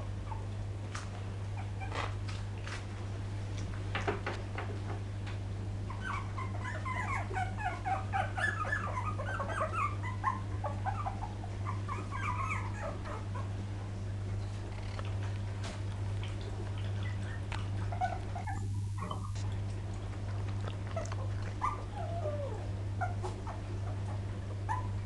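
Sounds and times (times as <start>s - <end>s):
steady low hum: 0.0s - 25.0s
puppies whimpering: 5.9s - 13.6s, 16.8s - 19.6s, 20.2s - 25.0s.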